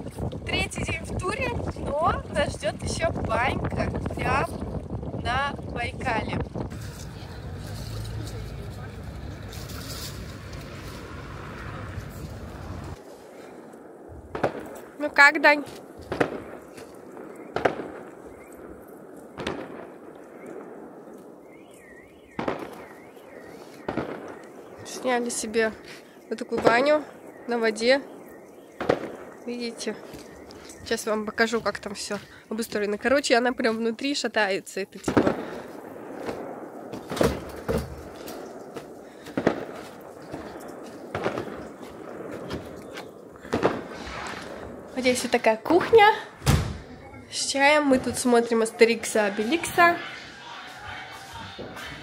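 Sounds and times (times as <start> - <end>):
sharp echoing bangs: 13.4 - 32.3, 35.0 - 52.0
faint warbling whistle: 21.4 - 32.3
sharp knocks and thuds: 46.4 - 46.9.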